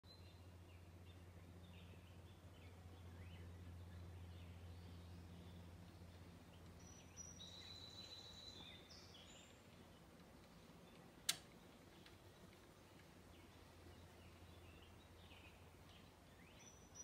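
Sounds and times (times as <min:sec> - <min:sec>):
low steady hum: 0:00.0 - 0:17.0
faint high chirps: 0:06.7 - 0:10.0
sharp click: 0:11.2 - 0:11.6.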